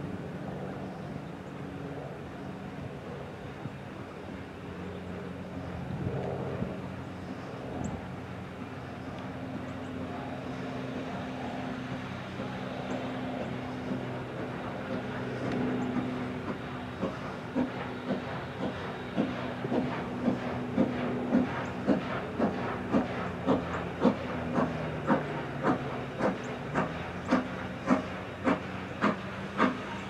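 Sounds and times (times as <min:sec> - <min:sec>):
steam train low rumble: 0:00.0 - 0:30.0
sharp clicks of train wheels: 0:13.8 - 0:30.0.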